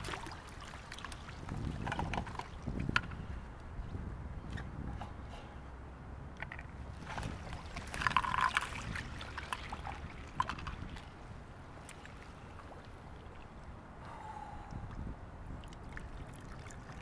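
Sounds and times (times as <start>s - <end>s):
water sloshing and splashing: 0.0s - 3.3s, 6.4s - 14.0s, 14.8s - 17.0s.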